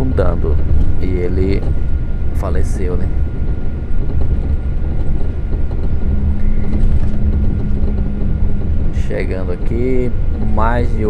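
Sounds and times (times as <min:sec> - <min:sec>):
engine and tyre rumble: 0:00.0 - 0:11.0
faint high whine: 0:00.0 - 0:11.0
steady low hum: 0:00.0 - 0:11.0.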